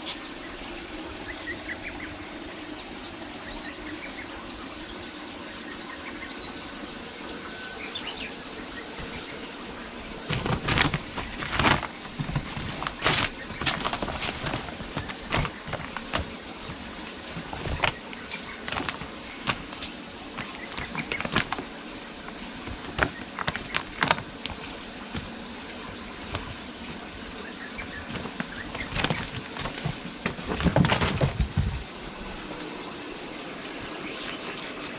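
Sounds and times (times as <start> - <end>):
plastic tarpaulin crinkling: 8.9 - 32.4.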